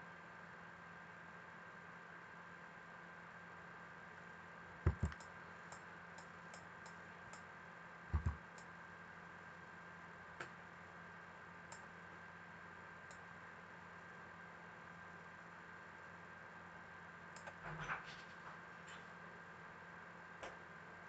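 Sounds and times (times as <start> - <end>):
low electrical hum: 0.0 - 21.0
computer mouse clicks: 4.9 - 7.4, 8.1 - 8.7, 11.7 - 11.9, 17.4 - 17.6.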